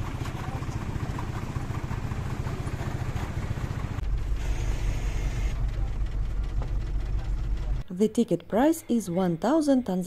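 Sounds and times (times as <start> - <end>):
minibus engine rumble: 0.0 - 7.9.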